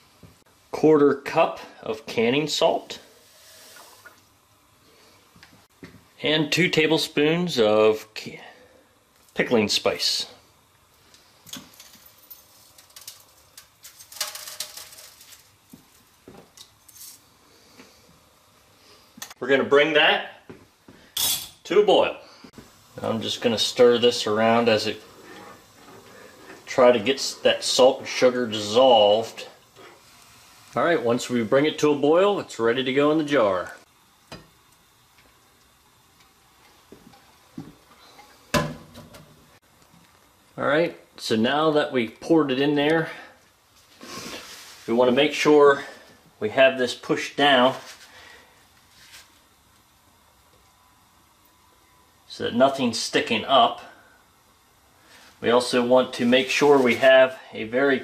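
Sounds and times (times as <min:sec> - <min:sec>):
spice pattering into liquid: 0:10.9 - 0:17.4.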